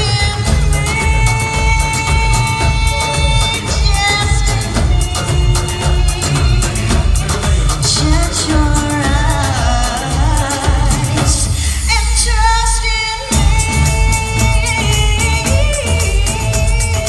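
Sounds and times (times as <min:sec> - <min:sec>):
person singing: 0:00.0 - 0:17.0
steady percussion beat: 0:00.0 - 0:17.0.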